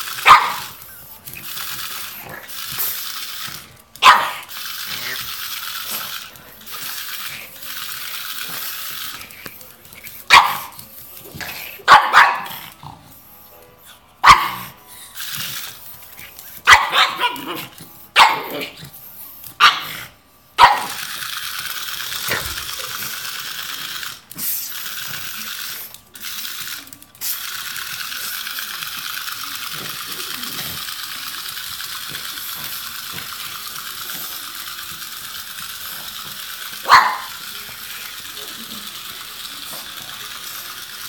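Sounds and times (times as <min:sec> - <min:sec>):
toy motor whirring: 0:00.0 - 0:41.0
dog barking: 0:00.2 - 0:00.7, 0:04.0 - 0:04.5, 0:10.3 - 0:10.8, 0:11.9 - 0:12.6, 0:14.2 - 0:14.8, 0:16.7 - 0:18.6, 0:19.6 - 0:19.9, 0:20.6 - 0:21.0, 0:36.8 - 0:37.4.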